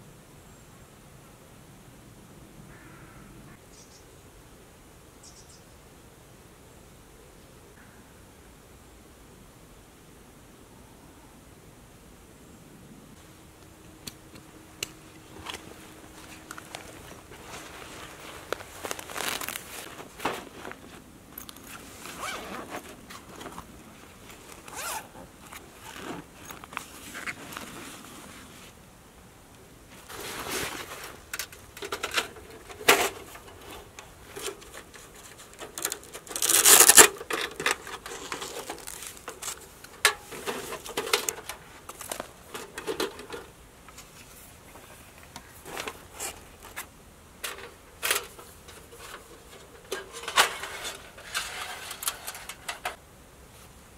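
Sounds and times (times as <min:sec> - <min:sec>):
fabric rustling: 0:15.2 - 0:28.8, 0:29.9 - 0:31.3
zips being pulled open: 0:21.4 - 0:23.7, 0:24.4 - 0:27.8, 0:33.0 - 0:39.6
light metal clicks and scrapes: 0:30.6 - 0:44.4, 0:45.1 - 0:53.0.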